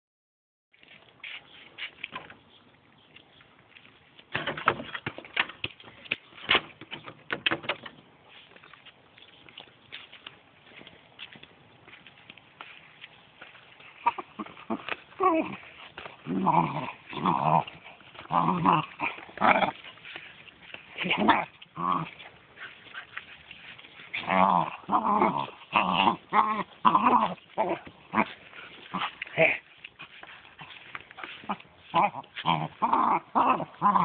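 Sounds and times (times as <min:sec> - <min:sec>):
dog growling and whining: 0:14.0 - 0:19.8, 0:24.2 - 0:28.3, 0:31.4 - 0:34.0.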